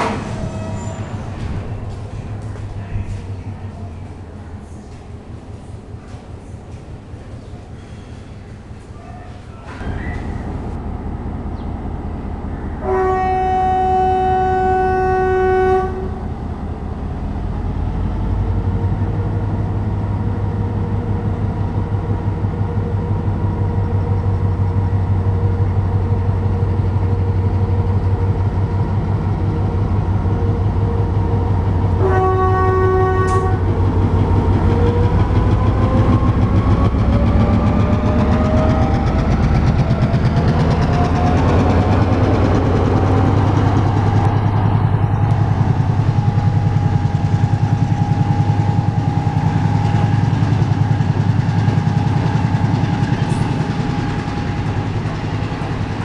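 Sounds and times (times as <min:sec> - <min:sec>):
locomotive horn blasts: 0:12.8 - 0:16.3, 0:32.0 - 0:33.7
diesel engine throbbing: 0:33.2 - 0:56.0.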